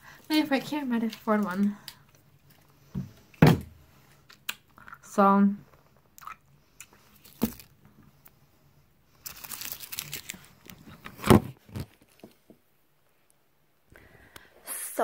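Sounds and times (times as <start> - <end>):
plastic or paper crinkling: 9.2 - 12.2.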